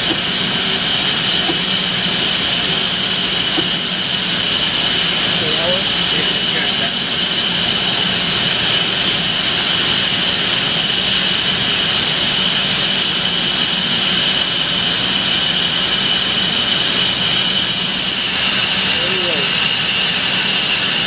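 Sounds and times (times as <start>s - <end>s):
lathe whirring with high whine: 0.0s - 21.0s.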